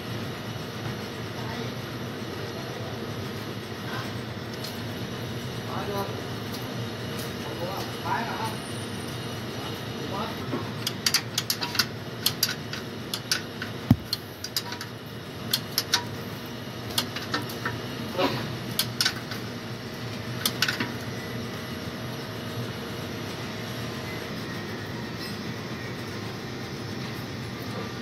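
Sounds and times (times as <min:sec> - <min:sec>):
spanner clicking on metal plug: 0:10.8 - 0:14.9.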